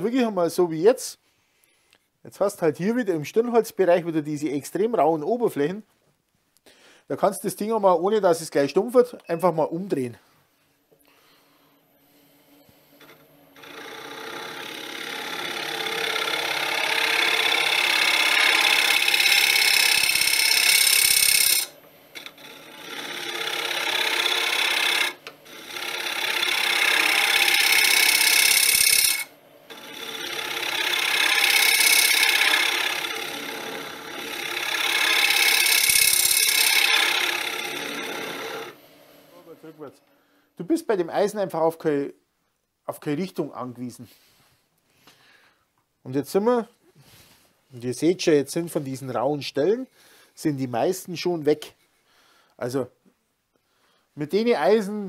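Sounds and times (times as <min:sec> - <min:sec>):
lathe tool scraping spinning wood: 0:11.4 - 0:39.7.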